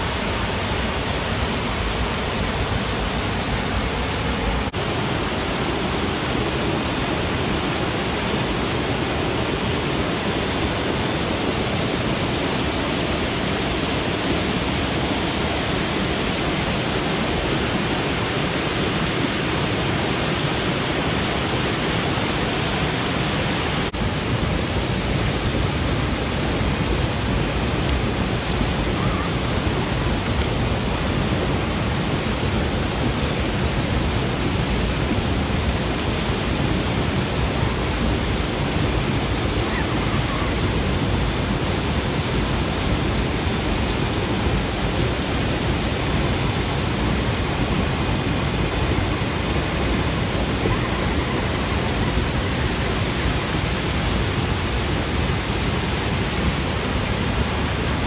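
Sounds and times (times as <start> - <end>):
waterfall rushing over rocks: 0.0 - 58.0.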